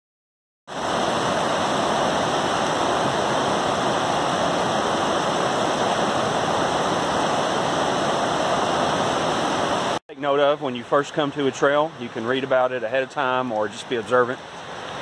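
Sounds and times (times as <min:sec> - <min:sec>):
water rushing over rocks: 0:00.7 - 0:15.0.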